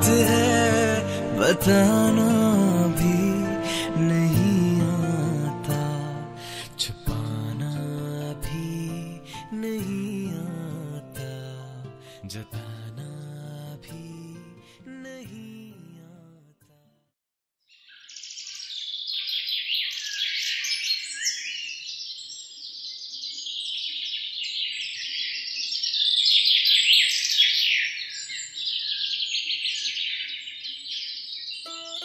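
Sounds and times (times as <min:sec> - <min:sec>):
small birds chirping and trilling: 0:17.6 - 0:32.0.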